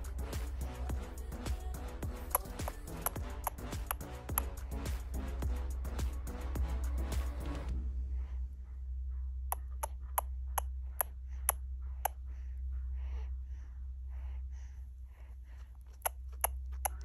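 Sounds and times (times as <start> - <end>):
music: 0.0 - 9.3
low steady hum: 0.0 - 17.0
baby sucking on pacifier: 2.2 - 5.1, 15.6 - 17.0
soft breathy sounds: 7.7 - 17.0.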